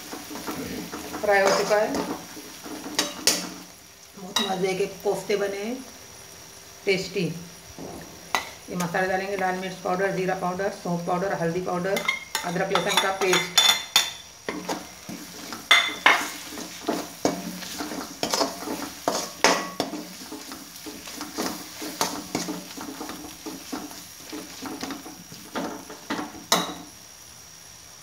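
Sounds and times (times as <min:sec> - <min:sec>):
metal skimmer scraping a pan: 0:00.0 - 0:03.6, 0:12.0 - 0:26.7
masala sizzling in oil: 0:00.0 - 0:28.0.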